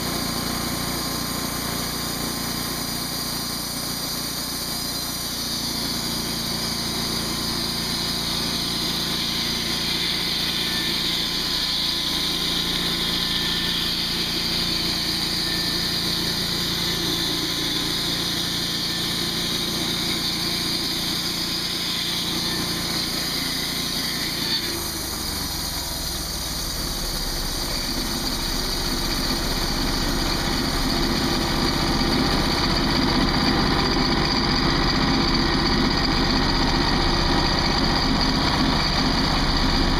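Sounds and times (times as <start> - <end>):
band blade sawing log: 0.0 - 39.9
sawmill engine running: 0.0 - 39.9.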